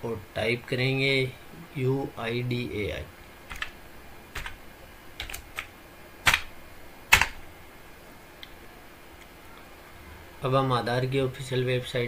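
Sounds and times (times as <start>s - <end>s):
keyboard keystrokes clicking: 3.5s - 3.8s, 4.4s - 4.6s, 5.2s - 6.5s, 7.1s - 7.4s.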